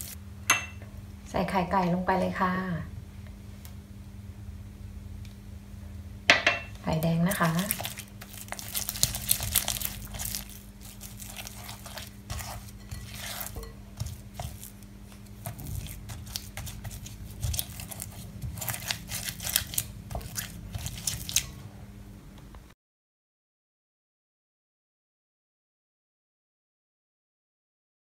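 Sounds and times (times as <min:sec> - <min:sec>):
faint steady hum: 0:00.0 - 0:22.8
spatula scraping glass bowl: 0:07.4 - 0:21.6.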